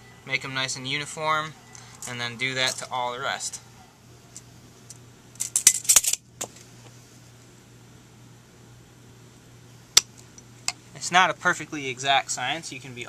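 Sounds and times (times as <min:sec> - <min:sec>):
metal tools and hangers clinking: 0:01.7 - 0:03.0, 0:05.4 - 0:06.2
pliers snapping through wire: 0:05.4 - 0:06.2.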